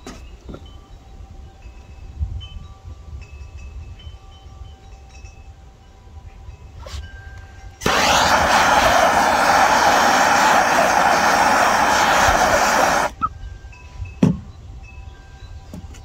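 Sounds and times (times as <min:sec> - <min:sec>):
gas torch hissing roar: 0:07.8 - 0:13.2.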